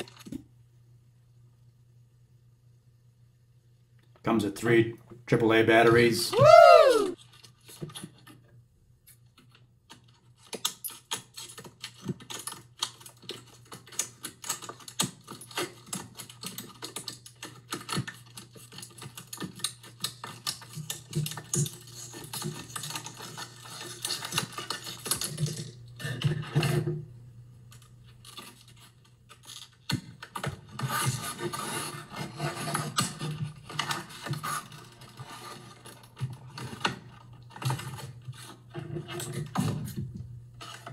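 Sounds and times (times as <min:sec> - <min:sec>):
plastic pried apart: 0:09.2 - 0:26.9
scissors snipping plastic: 0:09.9 - 0:25.4.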